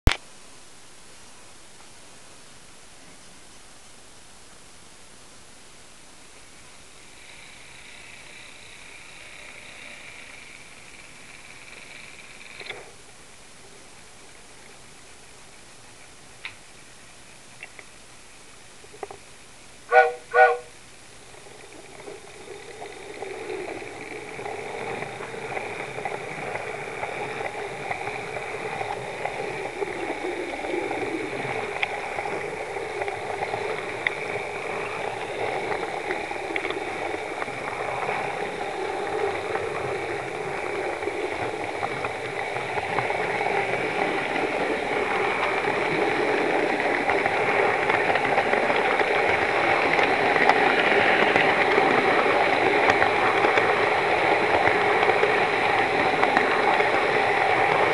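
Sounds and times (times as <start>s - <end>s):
model train running on track: 6.9s - 12.8s, 19.8s - 57.9s
train whistle toot: 19.9s - 20.8s.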